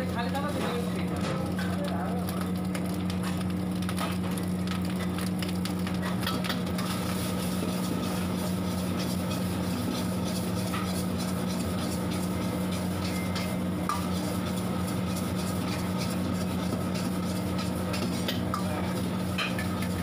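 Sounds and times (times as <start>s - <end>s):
low mechanical hum: 0.0s - 20.0s
utensils scraping a wok: 6.0s - 20.0s.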